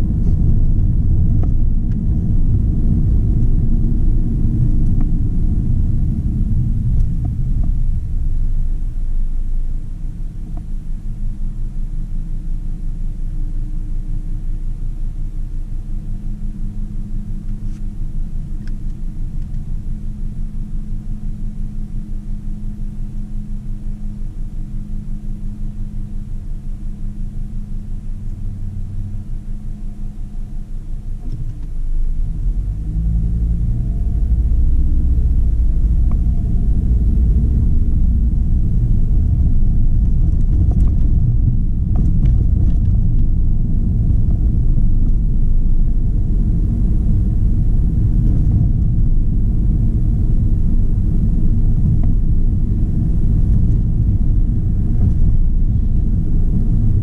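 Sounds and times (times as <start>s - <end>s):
engine and tyre rumble: 0.0s - 57.0s.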